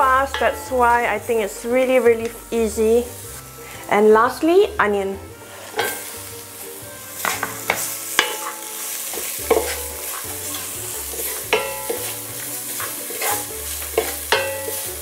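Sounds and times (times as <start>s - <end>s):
onion sizzling in pot: 0.0s - 15.0s
wooden spatula scraping pot: 5.4s - 6.2s, 7.2s - 15.0s.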